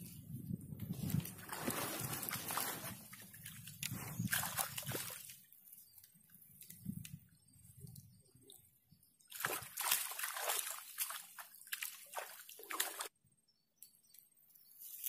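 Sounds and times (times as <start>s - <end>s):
water splashing and sloshing: 0.8s - 6.8s, 9.2s - 13.2s.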